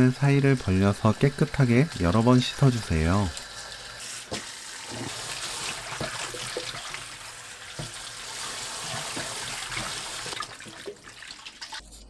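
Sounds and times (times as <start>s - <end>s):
tap running into a steel bowl: 7.8s - 8.0s.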